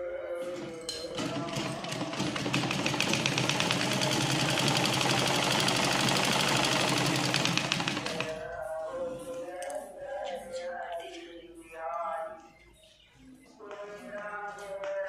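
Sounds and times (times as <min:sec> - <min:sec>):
sewing machine stitching: 0:01.2 - 0:08.4.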